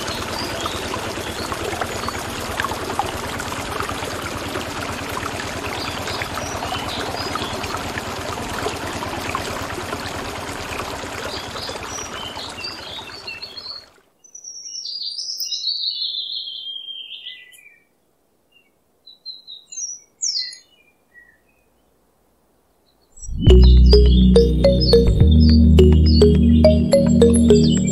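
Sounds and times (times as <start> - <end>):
birds chirping: 23.2 - 27.9.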